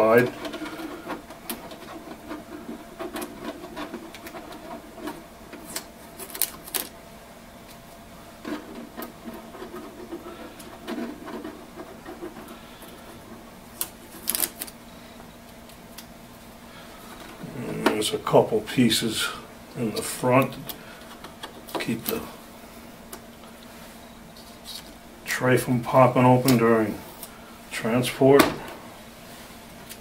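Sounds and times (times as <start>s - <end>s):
tape peeling off plastic: 2.7s - 7.0s, 13.7s - 14.8s.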